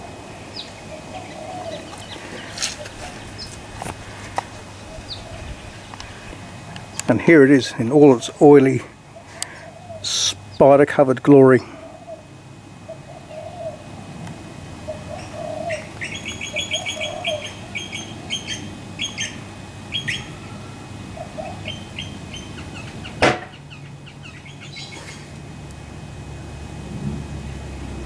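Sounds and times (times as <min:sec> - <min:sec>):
low warbling bird calls: 0:00.0 - 0:10.8, 0:11.6 - 0:14.2, 0:14.8 - 0:25.4
high repeated bird chirps: 0:15.2 - 0:20.3
sharp knock: 0:23.2 - 0:23.5.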